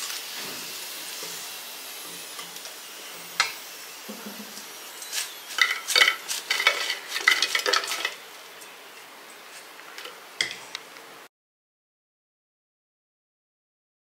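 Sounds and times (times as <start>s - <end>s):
fried potatoes clattering onto plate: 5.5s - 8.2s.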